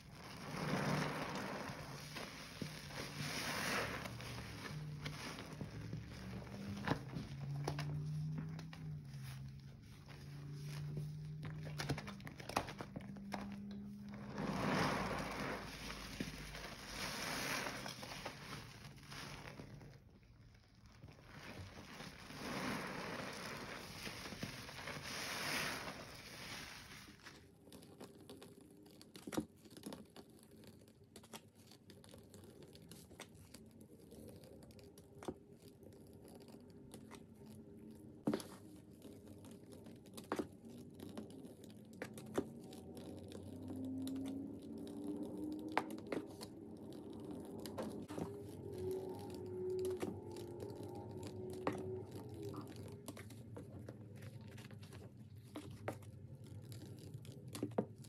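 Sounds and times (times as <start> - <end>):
sponge squelching in slurry: 0.0 - 12.2, 13.3 - 27.4.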